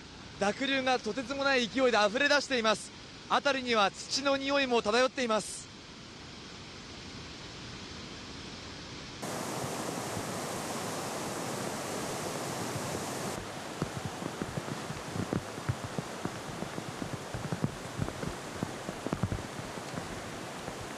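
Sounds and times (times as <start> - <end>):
floodwater rushing: 9.2 - 20.9
torrential rain: 9.2 - 20.9.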